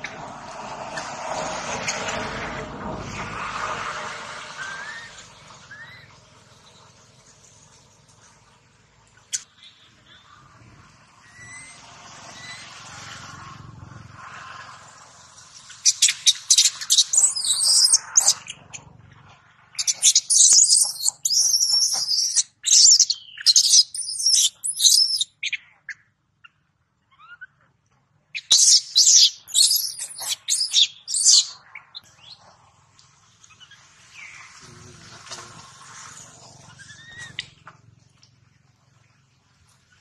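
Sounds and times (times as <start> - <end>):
baby monkey screaming: 11.2 - 11.8, 15.8 - 18.6, 19.8 - 25.3, 27.1 - 27.6, 28.4 - 31.6, 36.5 - 37.5.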